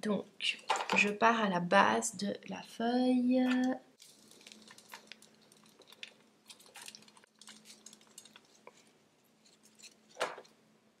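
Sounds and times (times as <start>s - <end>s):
soil rustling and crumbling: 4.0s - 10.5s.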